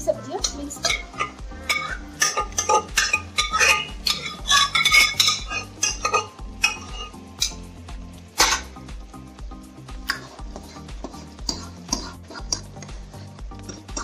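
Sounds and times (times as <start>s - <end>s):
metal spoon scraping a pot: 0.4s - 7.7s, 8.4s - 8.7s, 10.1s - 12.9s.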